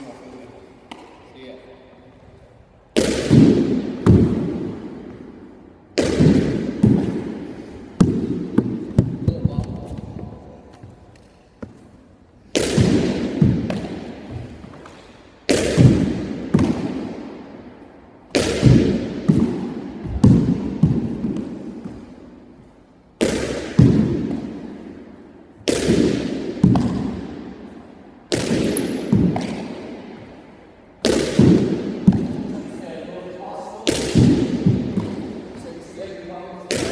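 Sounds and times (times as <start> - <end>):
ball bouncing and caught in glove: 0.9 - 1.3, 6.0 - 11.8, 12.5 - 17.3, 18.3 - 22.2, 23.2 - 25.0, 25.6 - 27.6, 28.3 - 30.3, 31.0 - 32.6, 33.8 - 35.6.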